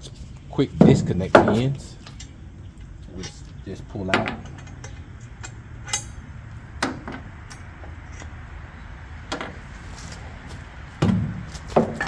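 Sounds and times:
sharp metal clanks: 4.1 - 8.3.

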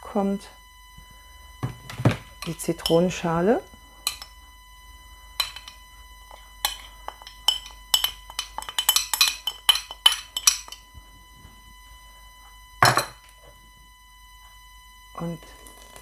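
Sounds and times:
glass clinking on metal pot: 4.0 - 4.3, 5.4 - 5.8, 6.6 - 10.8, 12.8 - 13.2.

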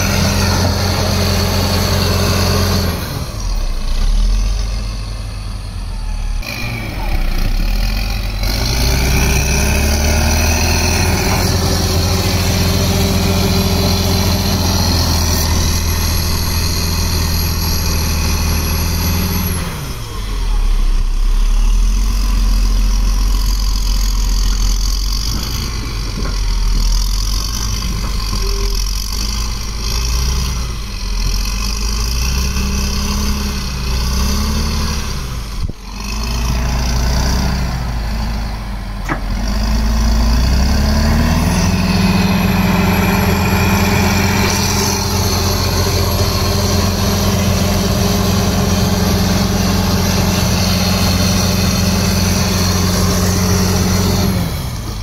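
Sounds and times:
bulldozer diesel engine under load: 0.0 - 55.0
blade pushing soil: 39.0 - 55.0.

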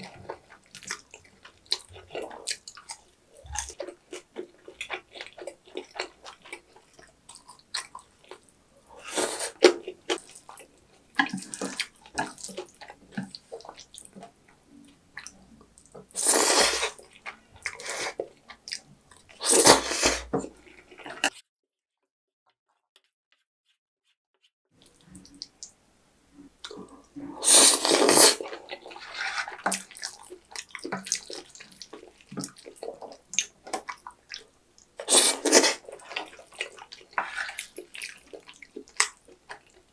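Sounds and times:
wet chewing and mouth smacks: 0.1 - 8.6, 16.9 - 19.4, 28.0 - 39.9
noodle slurping: 16.2 - 17.0, 27.4 - 34.0, 35.0 - 38.9.

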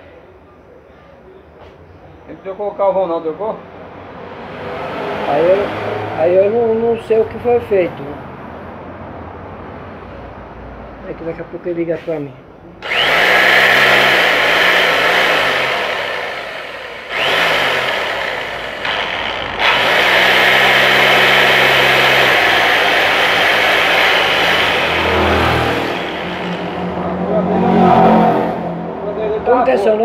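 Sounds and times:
rotary hammer drill running: 12.8 - 27.0.

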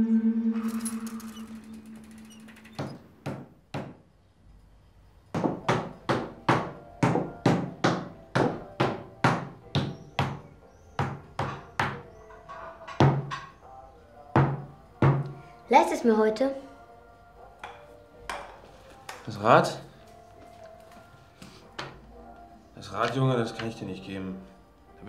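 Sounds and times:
knocking on wooden table: 2.8 - 4.0, 5.4 - 10.4, 12.9 - 13.5, 14.4 - 15.4.

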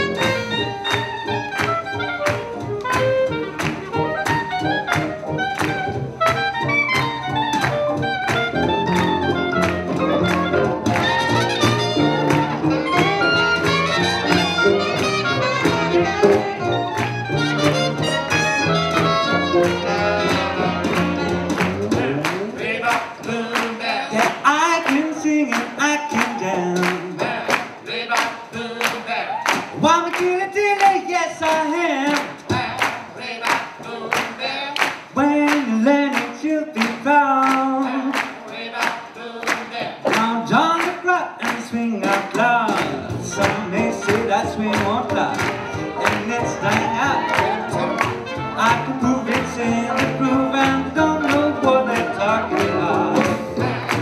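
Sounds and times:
saxophone: 0.0 - 22.6, 45.2 - 54.0
trumpet: 0.0 - 23.0, 42.4 - 54.0
swing jazz band playing: 0.0 - 54.0.

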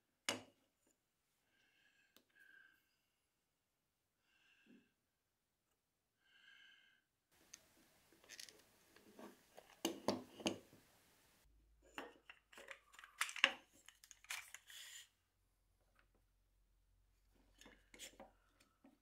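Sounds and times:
wooden and metal parts clicking: 8.2 - 8.6.

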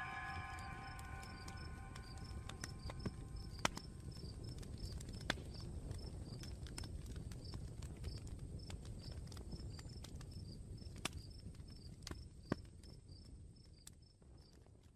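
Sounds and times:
crickets chirping: 0.0 - 4.5
fire crackling and popping: 0.0 - 14.9.

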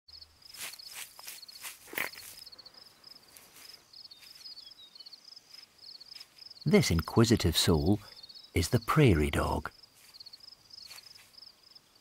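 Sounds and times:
crickets chirping: 0.1 - 12.0
rustling scrapes: 0.5 - 2.5.

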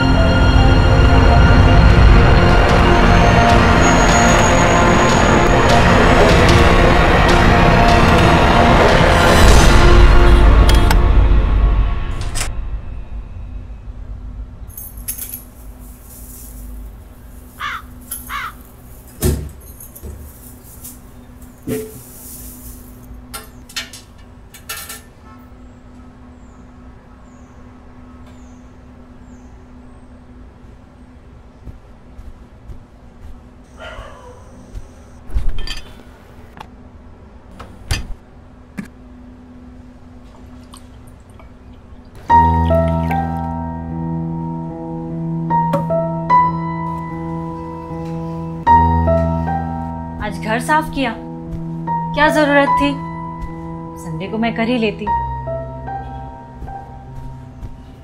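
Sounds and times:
crow cawing: 17.6 - 18.7.

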